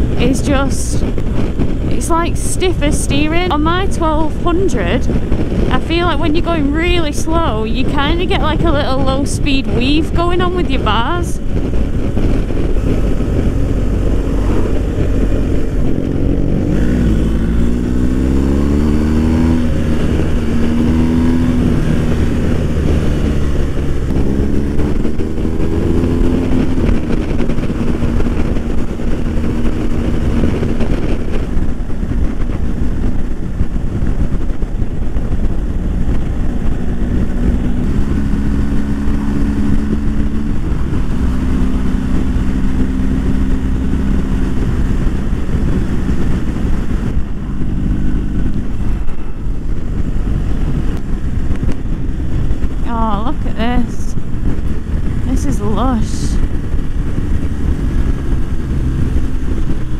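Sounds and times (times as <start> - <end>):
motorcycle engine accelerating: 0.0 - 59.9
wind rush: 0.0 - 59.9.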